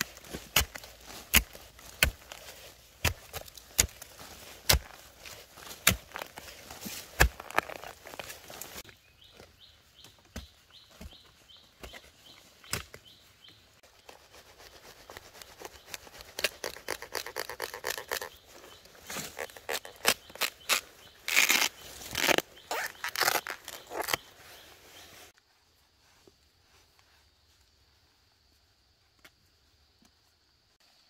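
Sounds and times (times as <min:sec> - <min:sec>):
hands digging through soil and leaves: 0:00.0 - 0:27.6
bird chirping: 0:08.8 - 0:25.2.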